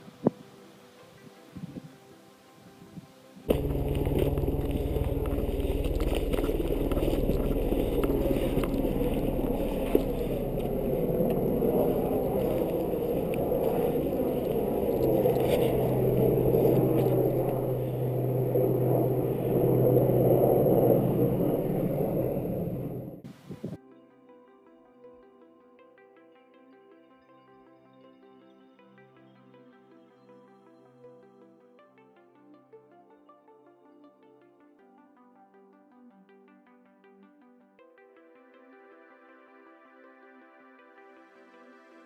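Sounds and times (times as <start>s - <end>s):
helicopter rotor and engine drone: 3.5s - 23.2s.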